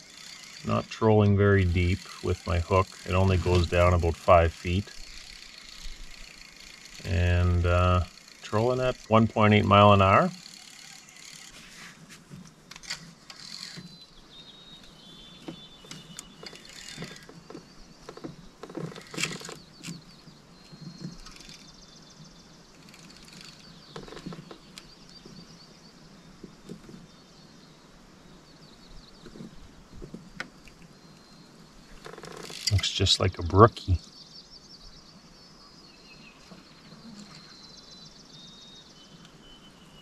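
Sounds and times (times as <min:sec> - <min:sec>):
fishing reel clicks and knocks: 0:10.3 - 0:11.6, 0:21.2 - 0:21.7, 0:32.0 - 0:32.8
faint whistled bird notes: 0:34.0 - 0:40.0.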